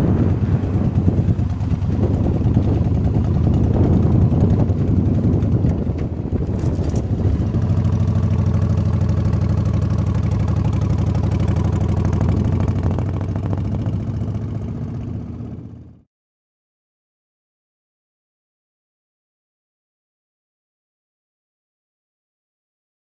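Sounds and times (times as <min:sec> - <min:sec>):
motorcycle engine cruising: 0:00.0 - 0:16.0.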